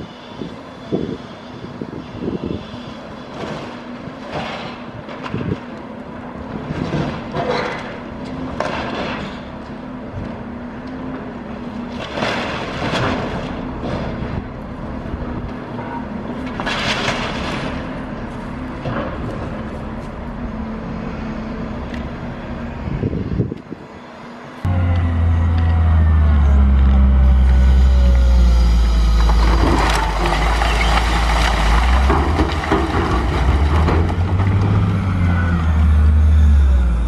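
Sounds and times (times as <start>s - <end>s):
diesel engine running: 0.0s - 37.0s
concrete debris breaking and scraping: 27.3s - 34.9s.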